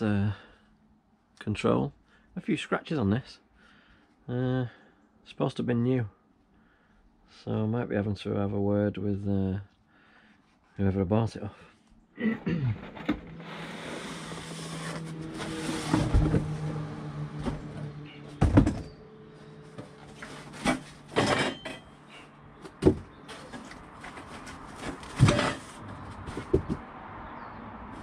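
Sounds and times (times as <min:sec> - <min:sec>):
cardboard and foam rustling: 0:12.4 - 0:17.6, 0:22.8 - 0:26.8.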